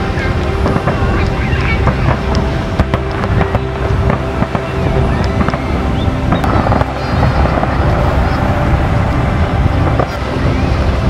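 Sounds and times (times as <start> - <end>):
dense low rumble: 0.0 - 11.0
fireworks bangs and crackles: 0.0 - 11.0
faint rising whistles: 4.8 - 11.0.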